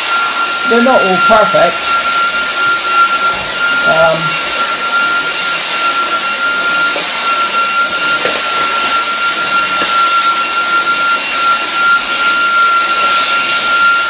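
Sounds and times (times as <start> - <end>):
vacuum cleaner running: 0.0 - 14.0.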